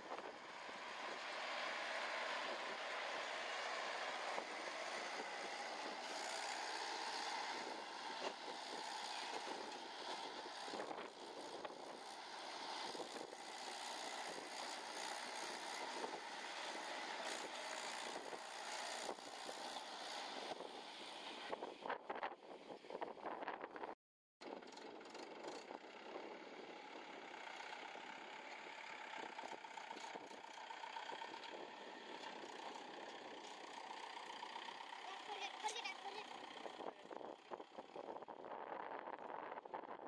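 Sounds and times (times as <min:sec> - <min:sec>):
tractor diesel engine running: 0:00.0 - 0:21.8, 0:24.4 - 0:39.4
wind noise on microphone: 0:20.3 - 0:24.6, 0:36.7 - 0:40.0.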